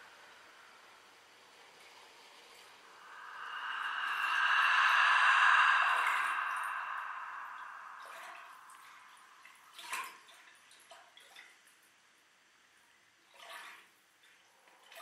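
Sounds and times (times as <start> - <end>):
rushing water-like noise: 0.0 - 10.4
faint steady tone: 2.7 - 10.2.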